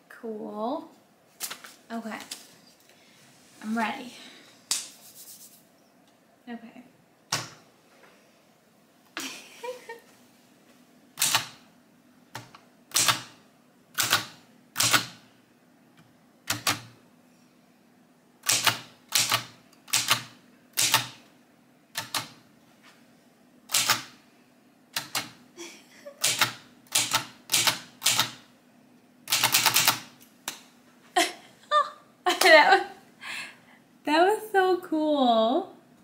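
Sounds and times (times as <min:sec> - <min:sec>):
manual typewriter keystrokes: 0:11.2 - 0:11.6, 0:12.3 - 0:13.4, 0:14.0 - 0:15.2, 0:16.5 - 0:17.0, 0:18.4 - 0:21.2, 0:21.9 - 0:22.4, 0:23.7 - 0:24.2, 0:24.9 - 0:25.4, 0:26.2 - 0:28.5, 0:29.3 - 0:30.2.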